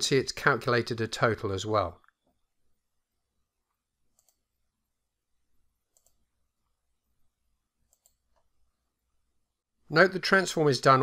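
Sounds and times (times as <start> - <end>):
computer mouse clicks: 4.1 - 4.6, 5.9 - 6.2, 7.8 - 8.5.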